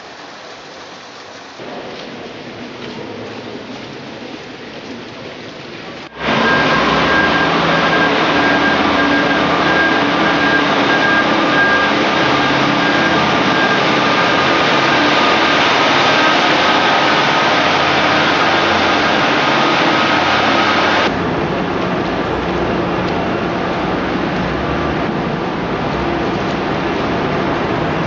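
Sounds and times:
faint whine: 6.0 - 28.0
diesel engine running: 6.1 - 28.0.

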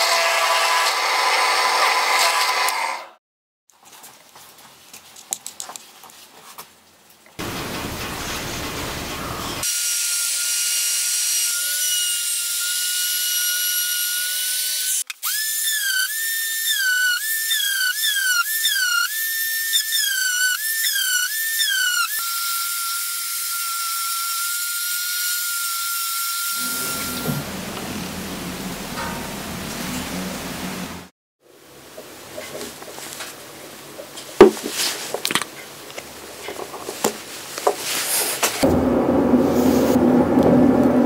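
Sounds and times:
rushing noise: 38.6 - 41.0.

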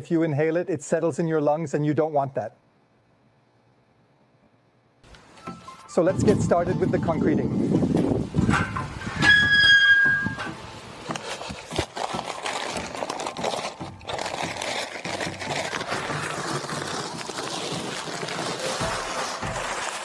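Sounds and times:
brief high squeak: 9.1 - 10.5
paper crinkling and rustling: 10.5 - 20.0
paper sack slit with knife: 10.6 - 20.0.

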